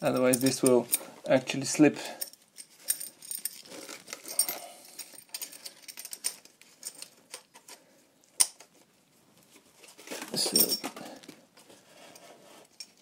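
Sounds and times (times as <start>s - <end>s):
metal clinks and rattles: 0.0s - 1.1s, 2.1s - 7.4s, 10.4s - 11.1s
aluminium foil crinkling: 3.6s - 4.5s.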